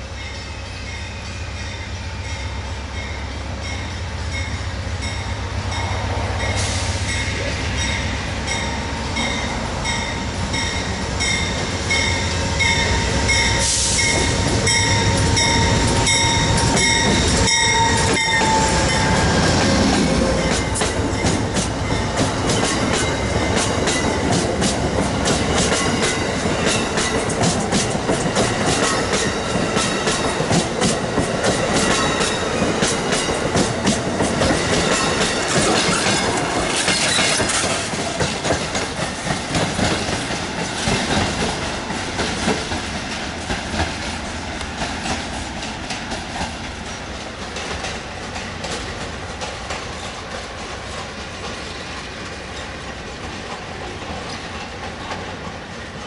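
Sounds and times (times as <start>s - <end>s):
crossing bell ringing: 0.0s - 24.3s
diesel locomotive engine rumbling: 0.0s - 56.0s
train wheels clattering over rail joints: 19.4s - 55.6s.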